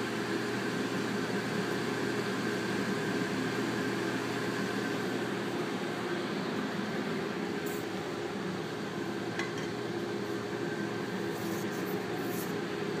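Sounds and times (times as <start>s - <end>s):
kitchen ventilation hum and hiss: 0.0s - 13.0s
glass or dishes clinking: 9.4s - 9.8s.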